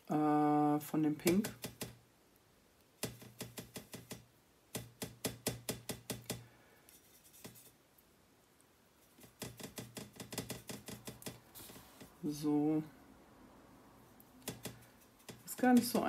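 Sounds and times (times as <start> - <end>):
paintbrush clicking against palette: 9.2 - 11.4, 14.4 - 16.0.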